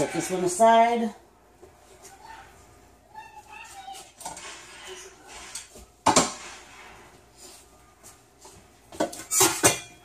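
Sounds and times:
kitchenware clattering on counter: 0:05.4 - 0:06.6, 0:09.0 - 0:10.0.

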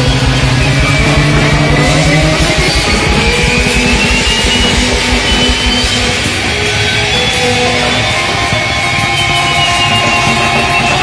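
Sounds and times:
high rising tone: 0:00.0 - 0:10.7
loud noise rock band: 0:00.0 - 0:11.0.

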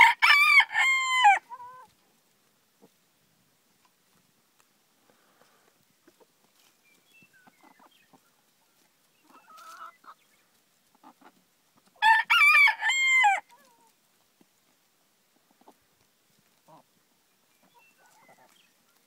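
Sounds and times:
rooster crowing: 0:00.0 - 0:01.4, 0:12.0 - 0:13.4
hens pecking and feeding: 0:00.0 - 0:19.0.

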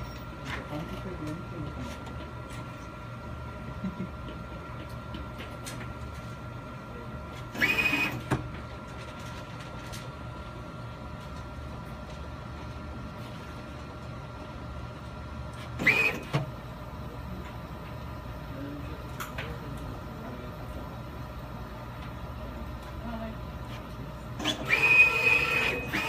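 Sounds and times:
electrical hum: 0:00.0 - 0:26.0
actuator motor whine: 0:06.5 - 0:08.6, 0:14.6 - 0:18.9, 0:24.3 - 0:26.0.

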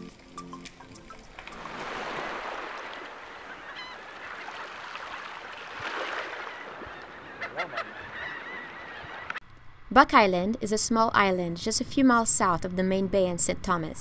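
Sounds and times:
gulls calling: 0:00.8 - 0:09.4.

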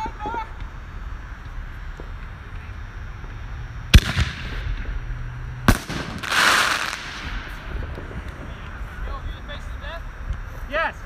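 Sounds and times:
hissing crackle: 0:00.0 - 0:11.0
firework mortar bangs: 0:03.9 - 0:05.0, 0:05.6 - 0:09.2.

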